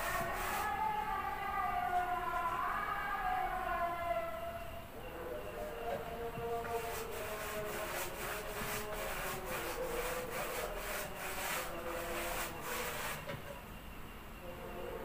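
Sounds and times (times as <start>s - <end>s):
paintbrush scrubbing: 0.0s - 0.8s, 6.6s - 13.3s
faint steady hum: 0.0s - 15.0s.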